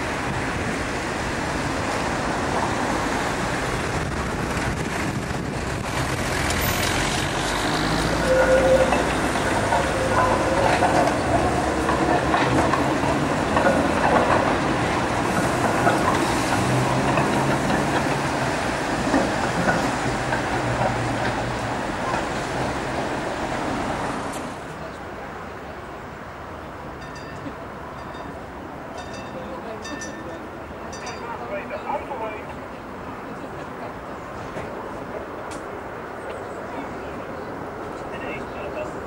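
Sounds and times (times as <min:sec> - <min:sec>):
tram wheels clicking over rail joints: 0:00.0 - 0:24.7
road traffic rumble: 0:00.0 - 0:39.0.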